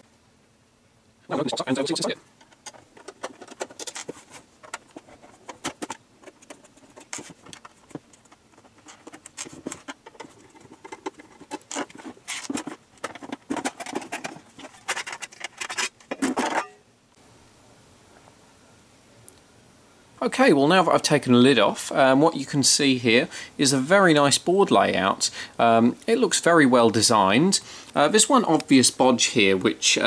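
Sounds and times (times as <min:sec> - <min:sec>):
lid scraping and rattling: 0:01.5 - 0:16.8.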